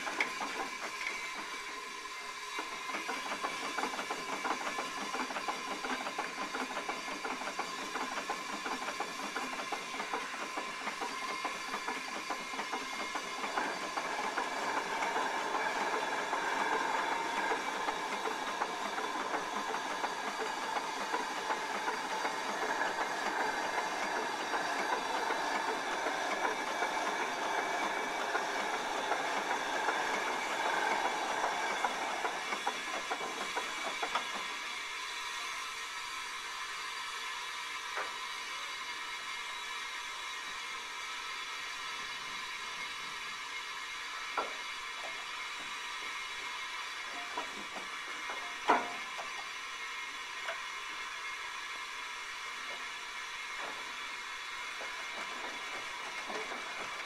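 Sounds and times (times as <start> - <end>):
railway crane mechanical clatter: 0.0 - 34.9, 51.9 - 57.0.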